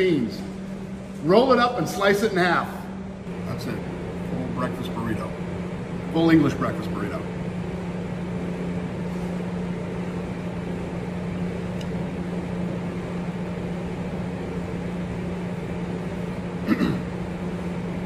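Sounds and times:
kitchen ventilation hum: 0.0s - 18.0s.

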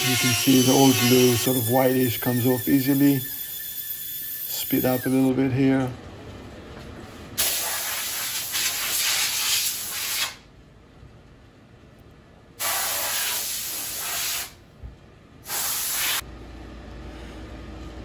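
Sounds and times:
compressed air blow gun hissing: 12.6s - 14.6s, 15.4s - 16.2s.

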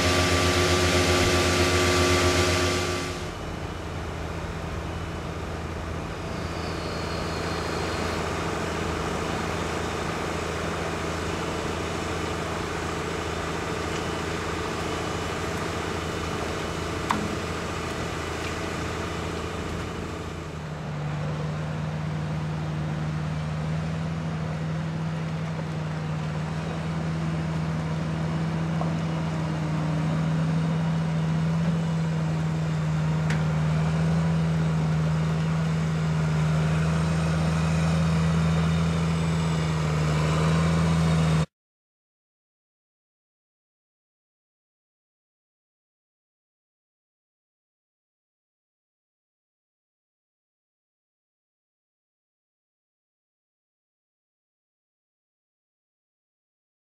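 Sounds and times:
tractor diesel engine running: 0.0s - 41.5s.

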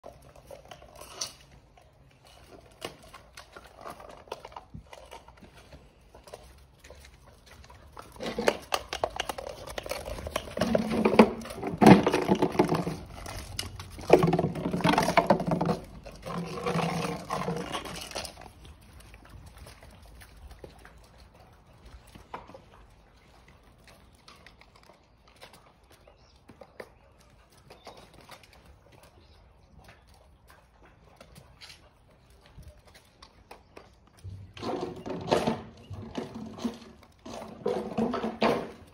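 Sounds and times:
paws tapping on paving slabs: 0.0s - 38.9s
puppies growling and yapping: 6.9s - 20.2s.

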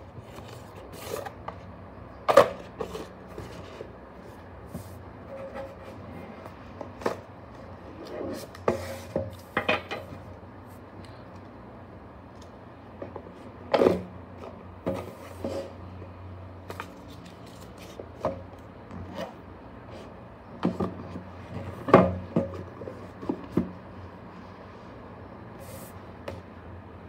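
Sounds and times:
cardboard box and cards handled: 16.7s - 18.3s.

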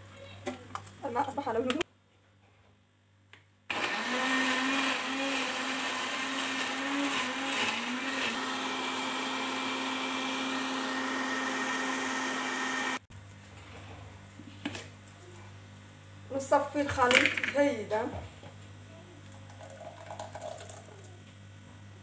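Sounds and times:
blender motor running: 3.7s - 13.1s.

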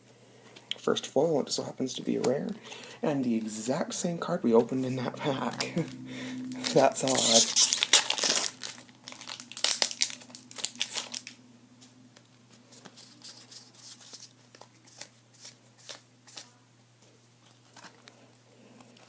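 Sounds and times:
foil wrapper crinkling and tearing: 6.6s - 11.4s, 12.7s - 16.5s.

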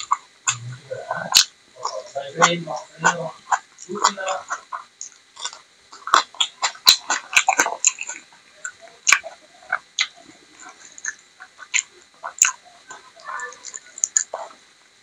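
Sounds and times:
lip smacks and mouth clicks: 0.0s - 0.7s, 1.3s - 2.1s, 2.8s - 14.5s
wet chewing: 0.0s - 14.6s.

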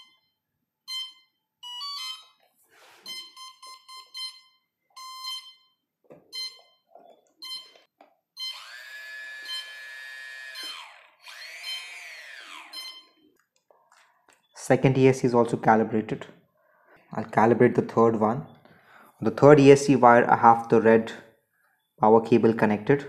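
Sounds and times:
motor controller beep tones: 0.0s - 0.3s, 3.1s - 5.7s, 6.4s - 6.8s, 8.4s - 13.3s
drone motor whine: 8.4s - 12.9s.

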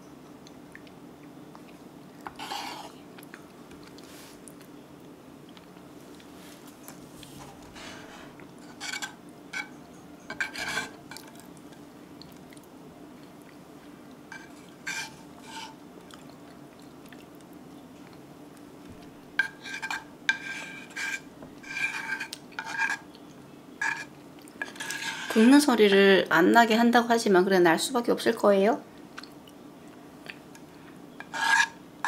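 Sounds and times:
spoon scraping rice off skillet: 2.2s - 3.0s, 7.7s - 11.0s, 14.3s - 15.8s, 19.4s - 23.1s, 23.8s - 25.5s, 31.2s - 31.8s.

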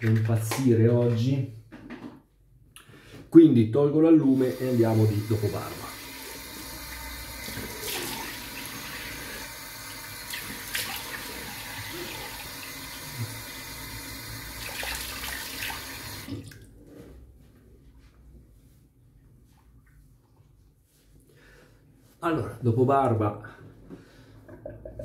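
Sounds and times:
water splashing face: 7.4s - 9.5s, 10.2s - 13.5s.

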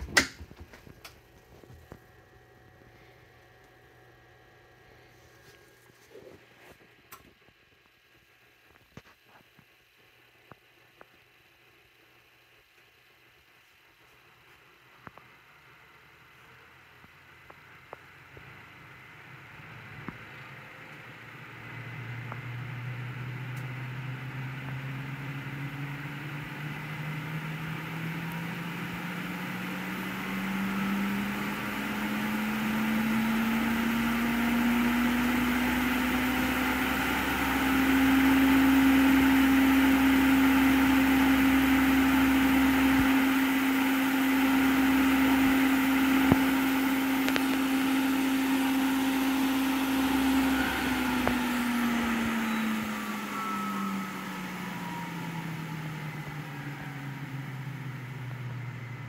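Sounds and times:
centrifuge motor whine: 17.0s - 59.0s.

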